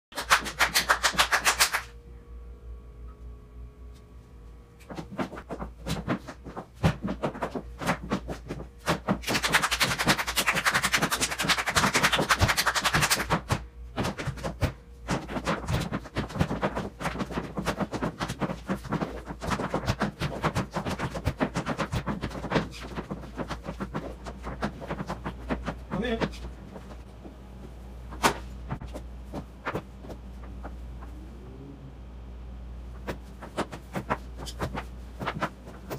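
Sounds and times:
rhythmic hand clapping: 0.1 - 1.9, 4.8 - 27.0.

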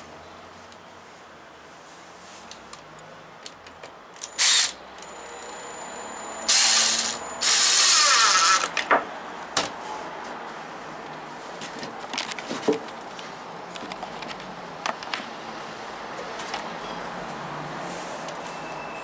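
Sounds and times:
cordless driver driving screws: 4.2 - 5.5, 6.5 - 8.8.

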